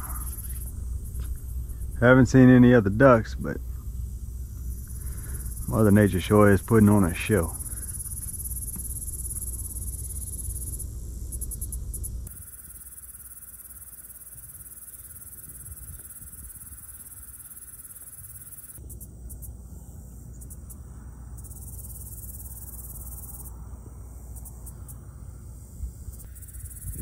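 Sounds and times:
low rumble: 0.0s - 12.3s
crickets and insects chirring: 0.0s - 27.0s.

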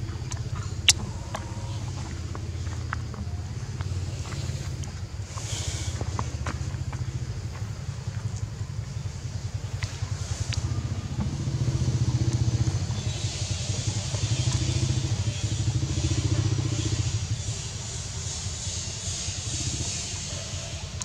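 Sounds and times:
small engine rumbling: 0.0s - 21.0s
high hiss: 9.9s - 21.0s.

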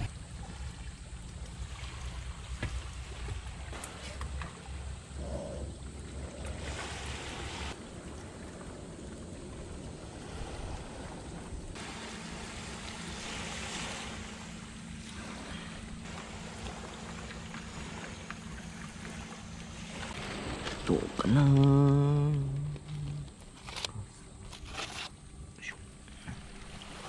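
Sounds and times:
small waves on pebble shore: 6.6s - 23.9s, 26.4s - 27.0s
faint low hum: 8.0s - 27.0s.

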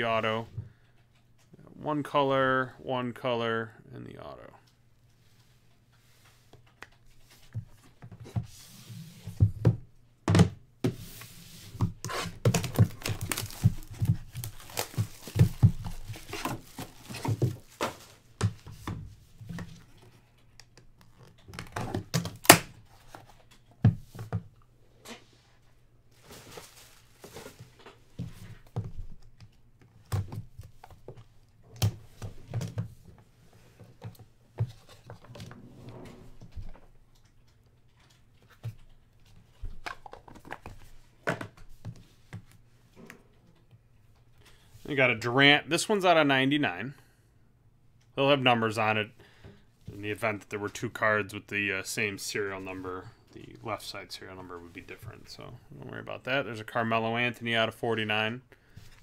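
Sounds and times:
wrapping rustling and tearing: 12.0s - 18.3s, 26.2s - 27.7s.

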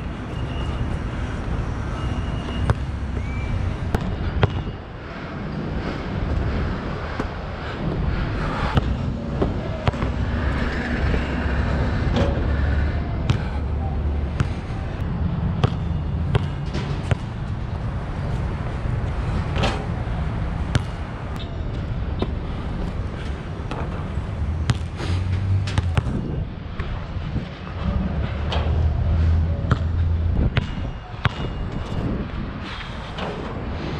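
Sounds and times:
city traffic rumble: 0.0s - 33.9s
basketball bouncing: 3.9s - 4.8s, 8.7s - 10.8s, 15.6s - 17.4s, 20.7s - 21.6s, 24.7s - 25.0s, 29.6s - 31.5s.

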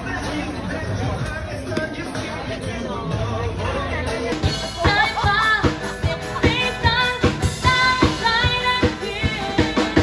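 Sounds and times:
drum kit beat: 4.3s - 10.0s.

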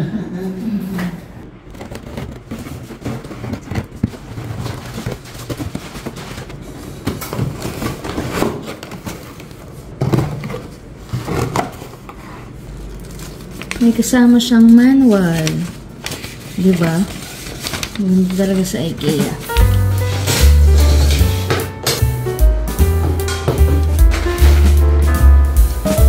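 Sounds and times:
cardboard box scraping and rustling: 1.6s - 9.2s, 19.2s - 21.5s.

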